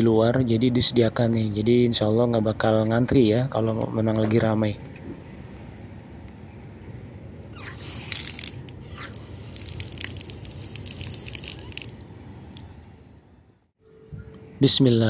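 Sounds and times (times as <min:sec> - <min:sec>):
tap water running and splashing: 0:09.6 - 0:12.6.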